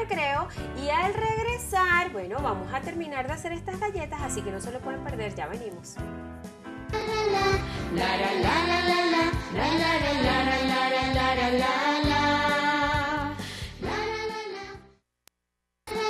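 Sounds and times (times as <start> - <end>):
music backing track: 0.0 - 15.0
person singing: 7.0 - 14.7.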